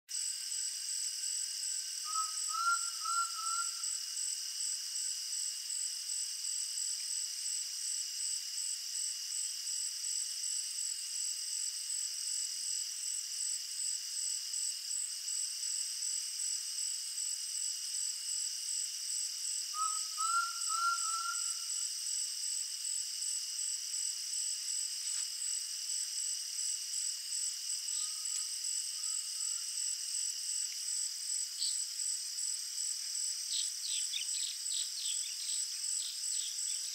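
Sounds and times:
shrill insect chorus: 0.1 - 36.9
bird rising whistles: 19.8 - 21.6.

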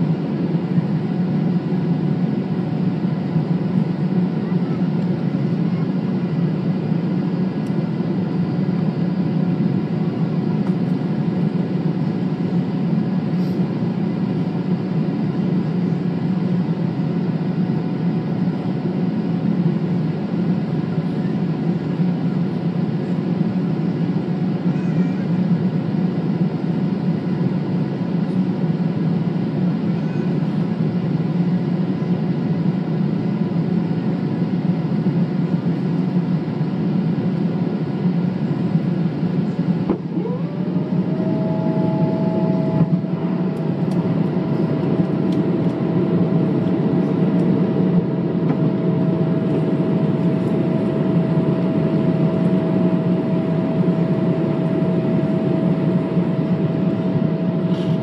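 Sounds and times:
airplane cabin roar: 0.0 - 58.0
rising whine: 39.8 - 58.0.

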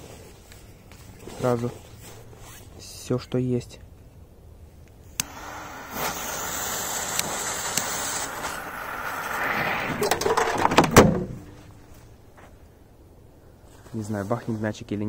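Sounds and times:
lighter click: 5.1 - 9.5
jet torch lighter hissing: 5.1 - 10.8
firecracker fuses sparking: 5.1 - 10.9
loud thump: 8.4 - 11.8.

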